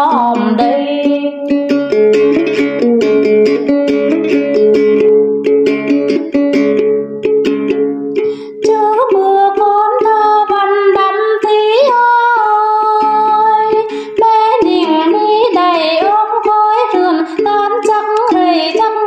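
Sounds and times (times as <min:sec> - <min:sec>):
woman singing slow melody: 0:00.0 - 0:01.5, 0:08.6 - 0:19.0
plucked lute: 0:00.0 - 0:19.0.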